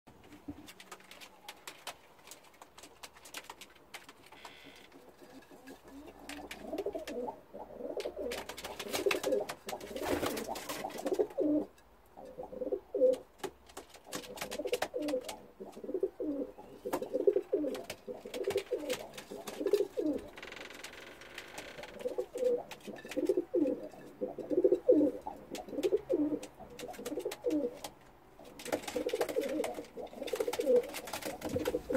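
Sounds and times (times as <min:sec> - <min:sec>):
pigeons cooing: 0:05.0 - 0:13.3, 0:14.1 - 0:20.3, 0:21.9 - 0:31.9.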